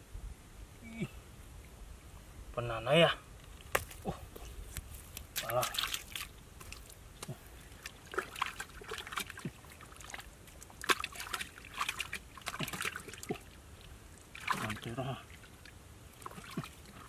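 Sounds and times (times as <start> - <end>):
mud squelching and sloshing: 3.7 - 17.0.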